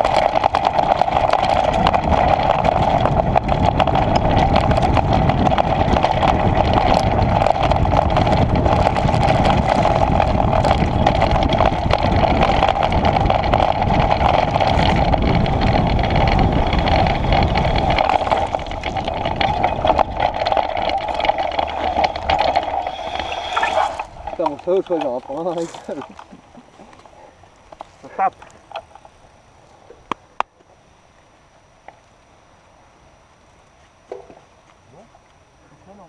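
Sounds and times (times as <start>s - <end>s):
steady rushing noise: 0.0s - 26.3s
low rumble: 0.0s - 27.4s
small rattles: 0.0s - 29.3s
bike tyre crunching over stones: 0.0s - 30.2s.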